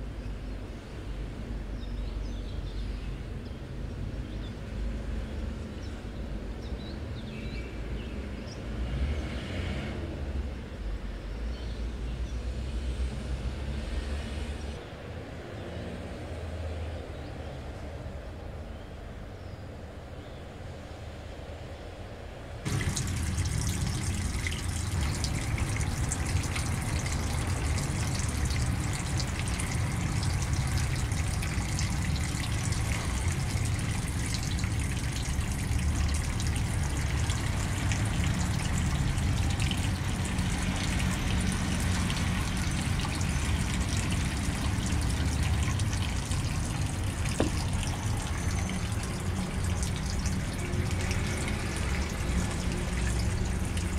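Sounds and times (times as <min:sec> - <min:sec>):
water pouring into fish tank: 0:22.7 - 0:53.9.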